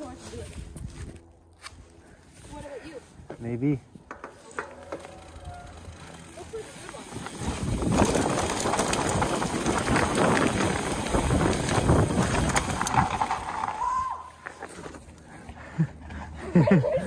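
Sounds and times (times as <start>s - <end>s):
bike frame and chain rattling: 4.0s - 15.2s
wind rushing over microphone: 7.0s - 14.2s.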